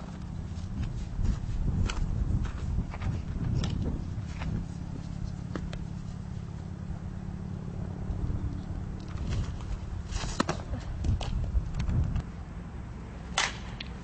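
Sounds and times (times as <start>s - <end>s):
low steady rumble: 0.0s - 14.0s.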